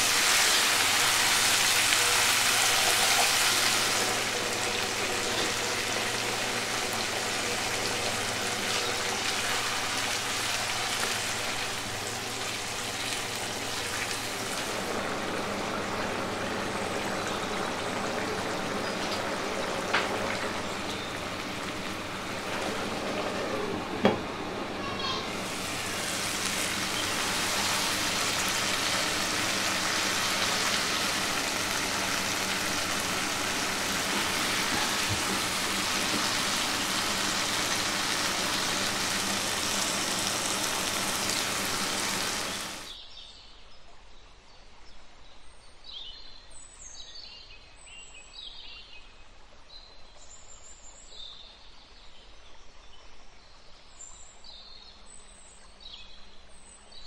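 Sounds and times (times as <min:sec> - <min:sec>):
gravy bubbling and sizzling: 0:00.0 - 0:43.0.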